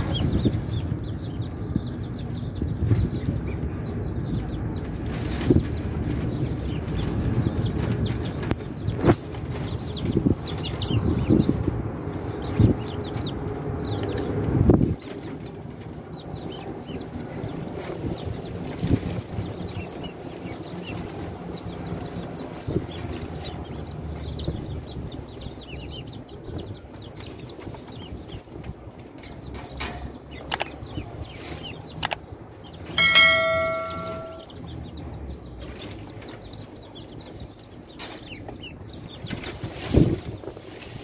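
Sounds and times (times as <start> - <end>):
chicks and ducklings peeping: 0.0 - 41.0
sharp clicks: 30.5 - 30.7, 32.0 - 32.2
bell-like ding: 33.0 - 34.5.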